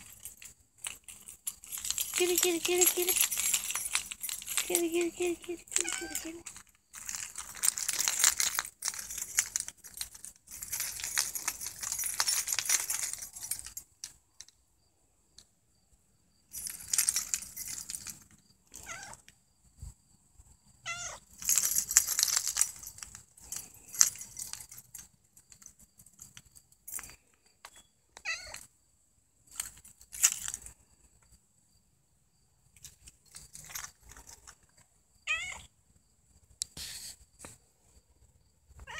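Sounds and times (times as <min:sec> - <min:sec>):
cat meowing: 0:18.8 - 0:19.2, 0:20.8 - 0:21.2, 0:28.2 - 0:28.6, 0:35.3 - 0:35.7
hiss-like noise: 0:36.6 - 0:37.6.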